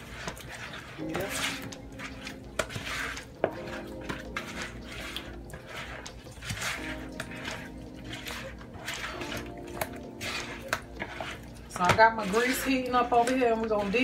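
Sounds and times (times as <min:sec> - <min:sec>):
background music: 0:00.0 - 0:14.0
hands squishing wet meat: 0:00.0 - 0:14.0.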